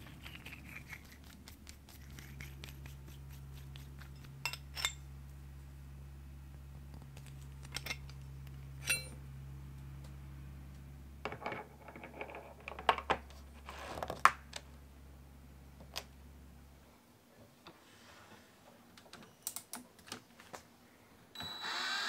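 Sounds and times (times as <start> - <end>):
steady low hum: 0.0 - 13.7, 14.3 - 18.9
metal tools clinking and clattering: 4.4 - 5.0, 8.8 - 9.2.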